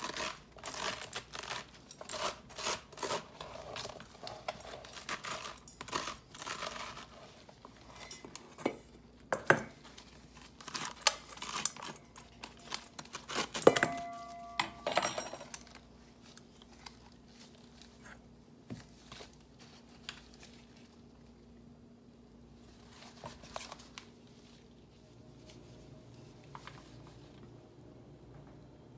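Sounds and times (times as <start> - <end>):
bowl ringing: 13.6 - 15.8.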